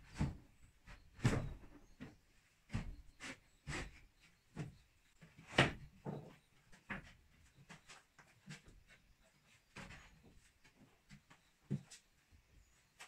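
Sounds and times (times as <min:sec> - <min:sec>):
knocks and clatters on bamboo: 0:00.1 - 0:09.0.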